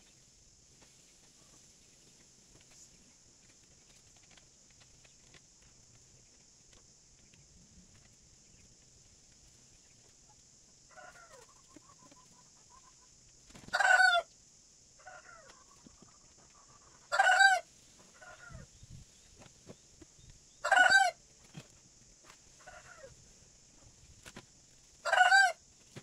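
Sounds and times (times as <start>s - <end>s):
chickens calling: 10.0s - 14.3s, 15.0s - 18.7s, 20.6s - 21.7s, 22.5s - 23.9s, 25.0s - 25.6s.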